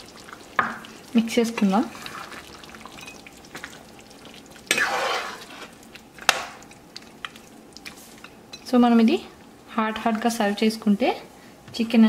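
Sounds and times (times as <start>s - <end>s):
spoon stirring thick gravy: 0.0s - 8.7s.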